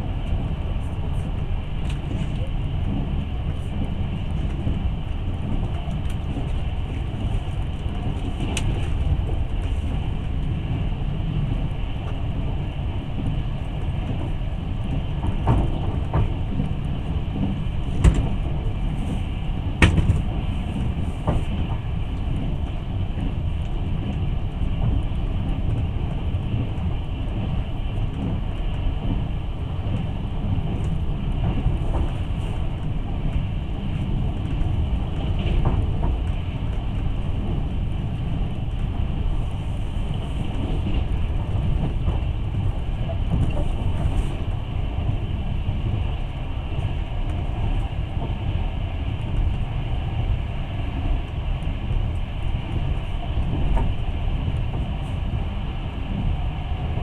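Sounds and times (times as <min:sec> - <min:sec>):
train rumble inside carriage: 0:00.0 - 0:57.0
sharp clicks and knocks: 0:19.8 - 0:20.2.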